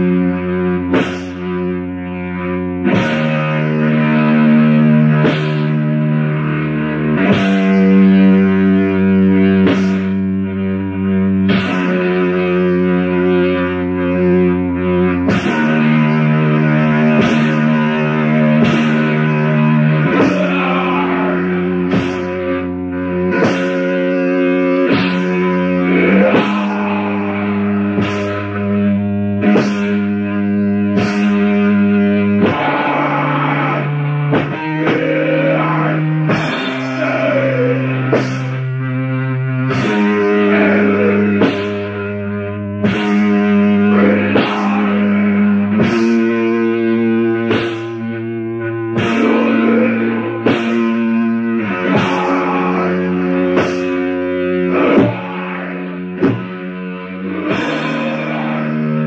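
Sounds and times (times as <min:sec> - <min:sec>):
distorted electric guitar chords: 0:00.0 - 0:59.0
drum hits: 0:15.3 - 0:15.8, 0:17.2 - 0:17.7, 0:18.6 - 0:19.2, 0:21.8 - 0:22.6, 0:23.4 - 0:23.9, 0:24.9 - 0:25.5, 0:26.3 - 0:28.6, 0:44.3 - 0:45.1, 0:47.5 - 0:48.0, 0:49.0 - 0:49.8, 0:50.4 - 0:51.1, 0:51.9 - 0:52.7, 0:56.2 - 0:56.6.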